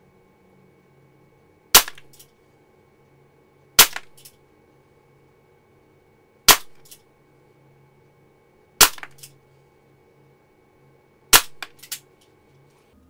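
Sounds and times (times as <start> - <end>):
air pistol shots: 1.8 - 2.2, 3.8 - 4.3, 6.5 - 7.0, 8.8 - 9.3, 11.3 - 12.0.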